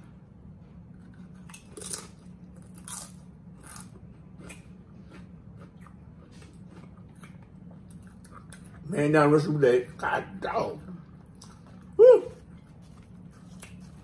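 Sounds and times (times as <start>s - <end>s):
chips crunching while chewed: 1.1s - 8.9s.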